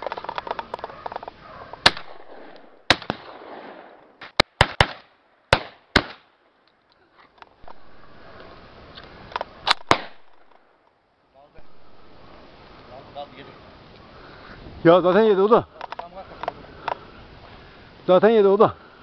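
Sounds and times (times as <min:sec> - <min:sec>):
shotgun shots: 0:01.8 - 0:06.3, 0:09.6 - 0:10.6.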